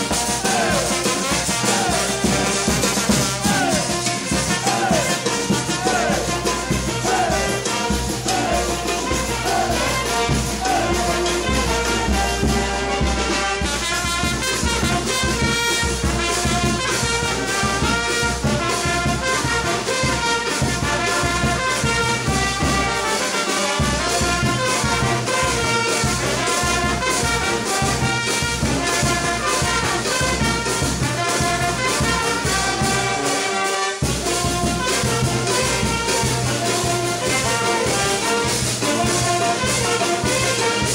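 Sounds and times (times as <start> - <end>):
bass drum and drums: 0.0 - 22.9
trumpets and saxophones melody: 0.0 - 40.9.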